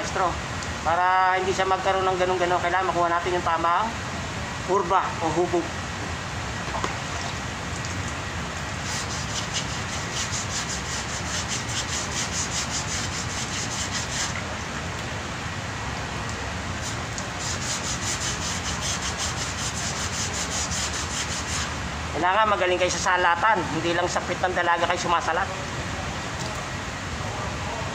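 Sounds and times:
sanding block scraping filler: 0:08.8 - 0:14.4, 0:16.8 - 0:21.7.

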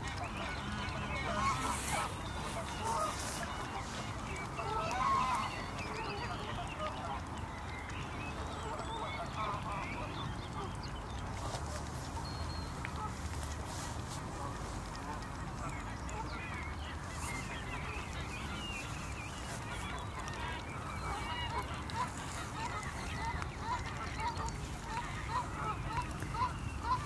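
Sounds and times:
geese honking: 0:00.0 - 0:07.2, 0:12.8 - 0:27.0.

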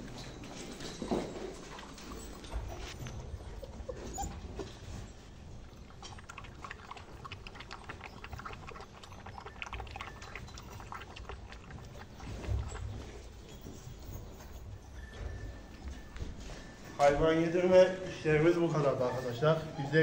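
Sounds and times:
puppy lapping milk: 0:01.6 - 0:14.9.

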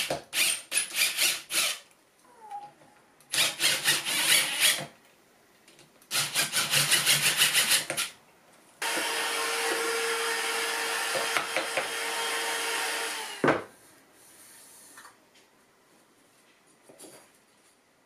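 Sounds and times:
cordless drill boring into wood: 0:00.3 - 0:01.8, 0:03.3 - 0:04.8, 0:08.8 - 0:13.4
vacuum cleaner running: 0:08.8 - 0:13.4.

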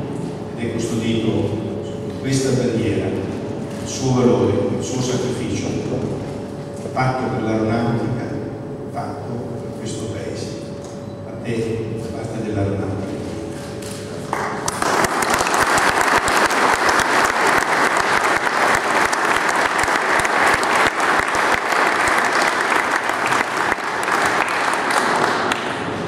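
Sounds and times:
audience applauding: 0:14.3 - 0:26.0.

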